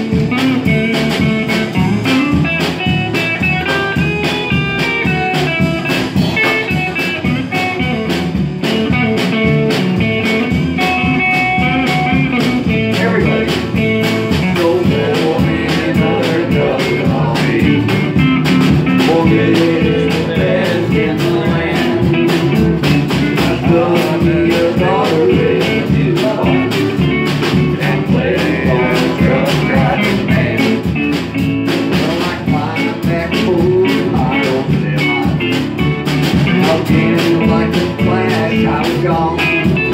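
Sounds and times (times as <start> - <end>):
acoustic guitar: 0.0 - 39.9
electric guitar: 0.0 - 39.9
person singing: 10.8 - 31.0, 31.8 - 35.6, 36.4 - 39.9.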